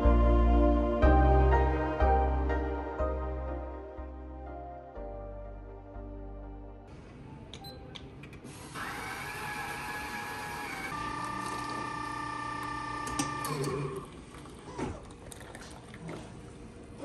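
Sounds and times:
machine whine of several tones: 8.5s - 14.1s
coffee machine motor whirring: 8.5s - 14.2s.

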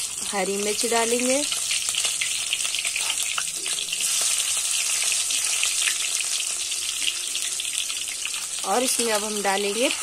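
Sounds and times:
spices sizzling in hot oil: 0.0s - 10.0s.

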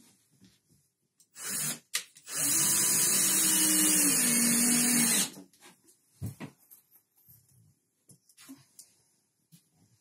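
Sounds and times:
cordless drill running: 1.3s - 5.4s.

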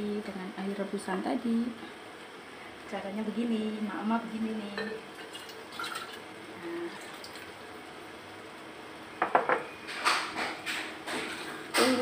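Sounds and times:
knocks on frying pan: 9.2s - 10.6s.

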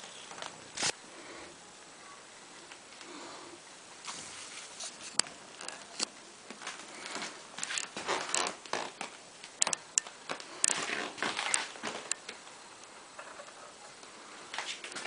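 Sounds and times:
rustling with light taps: 4.0s - 15.0s.

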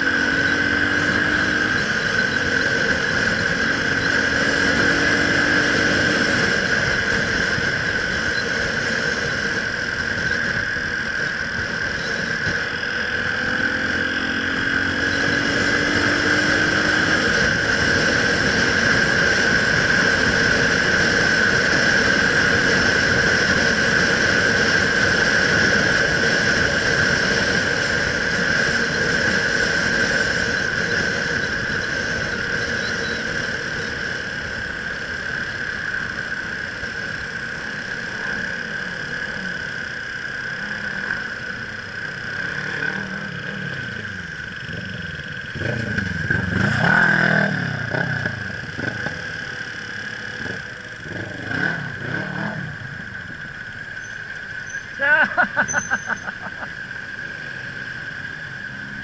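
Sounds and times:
engine revving: 0.0s - 8.1s, 12.4s - 33.4s, 37.6s - 53.4s
motorcycle riding: 0.0s - 59.0s
steady high whine: 0.0s - 59.0s.

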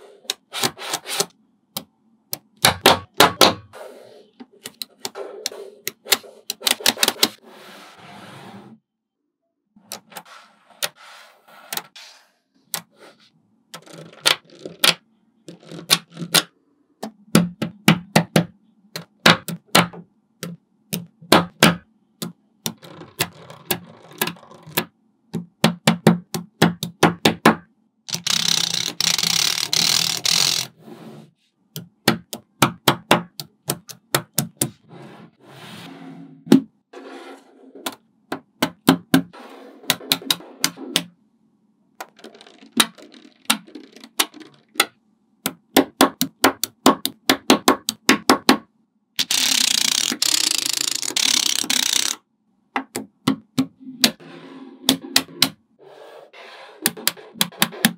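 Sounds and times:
magnetic balls clicking together: 49.2s - 52.2s.

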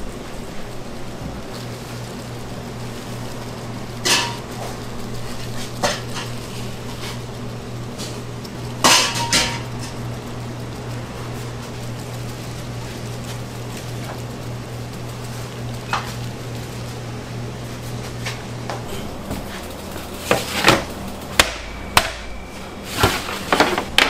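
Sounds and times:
steady machine hum: 0.0s - 24.0s
metal trays clanking: 4.0s - 4.5s, 8.8s - 10.0s.

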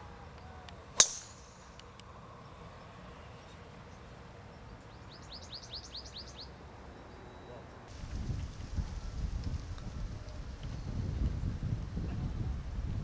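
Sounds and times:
golf club striking ball: 1.0s - 1.9s.

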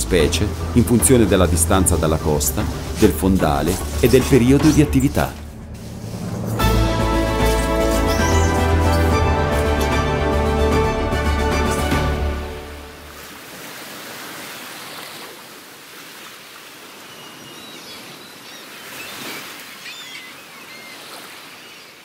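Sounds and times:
closing music: 0.0s - 13.1s
sea waves washing: 0.0s - 21.8s
gull cries: 7.5s - 9.2s.

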